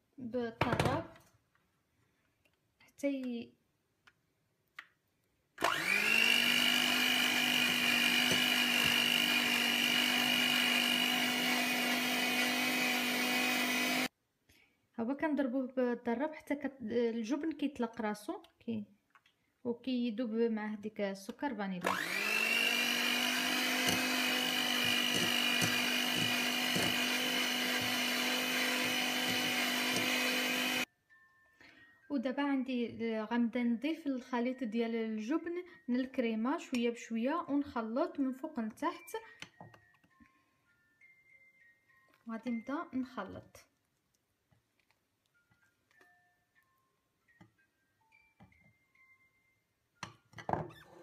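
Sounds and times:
electric hand mixer whining: 5.6s - 14.1s, 21.8s - 30.9s.

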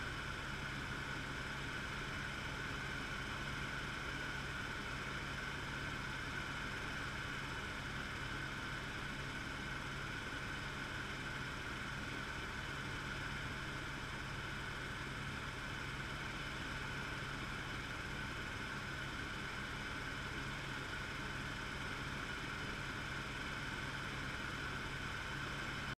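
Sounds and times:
helicopter engine and rotor noise: 0.0s - 25.9s.

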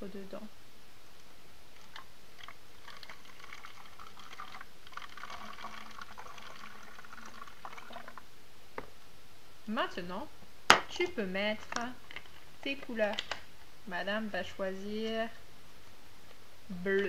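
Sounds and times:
liquid trickling into a bottle: 1.8s - 8.2s.

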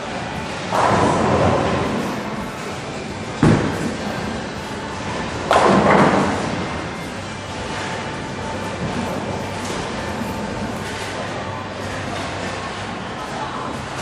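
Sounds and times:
bowling ball rolling: 0.6s - 12.9s
bowling pins crashing: 0.7s - 6.9s.

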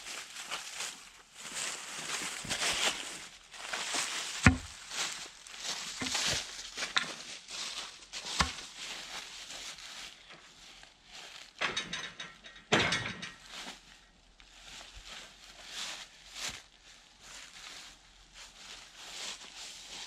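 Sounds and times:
footsteps in dry leaves: 0.0s - 11.6s, 13.4s - 20.0s
ratcheting metal clatter: 11.6s - 13.5s.

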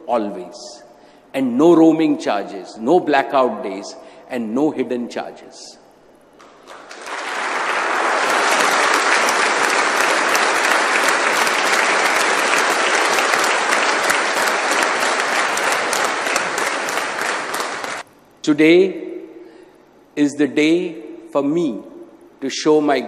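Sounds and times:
large audience applauding: 6.4s - 18.1s.

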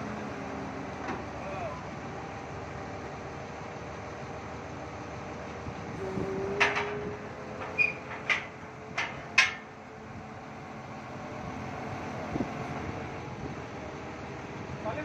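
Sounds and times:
steady machine hum: 0.0s - 14.8s
sharp metal knocks and clanks: 6.6s - 7.0s, 7.6s - 9.7s.

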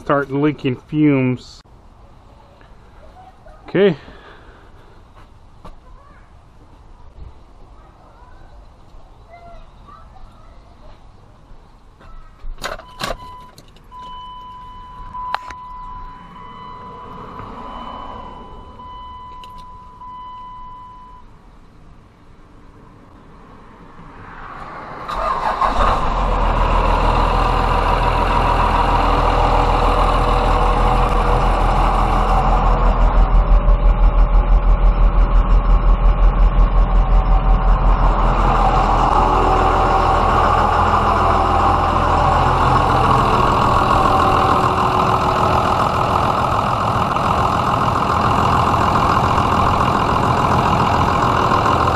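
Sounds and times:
diesel engine cranking and idling: 12.6s - 21.4s, 25.0s - 51.9s
steady electronic tone: 14.7s - 20.8s, 30.2s - 51.9s.

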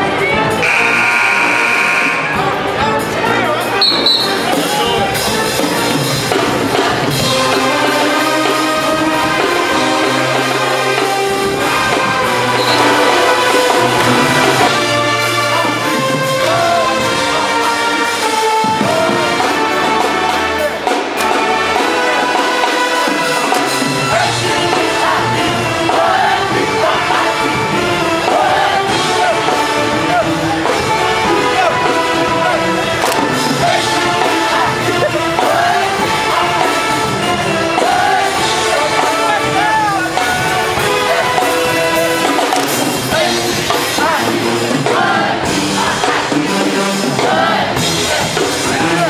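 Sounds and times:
brass music: 0.0s - 49.0s
person singing: 14.6s - 49.0s.

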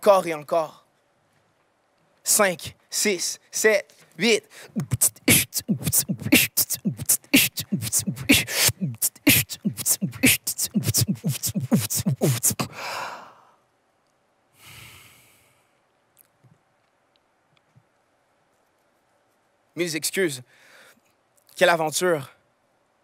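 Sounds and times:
vocal beatboxing: 4.5s - 12.8s
breathy exhales: 4.5s - 13.5s.

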